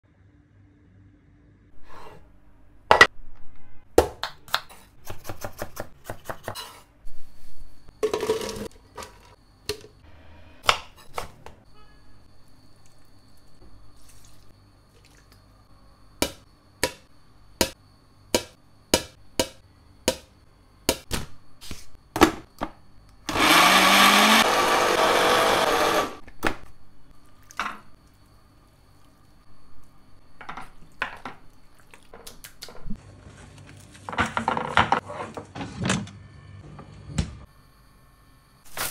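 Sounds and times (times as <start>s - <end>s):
blender motor grinding: 23.3s - 26.2s.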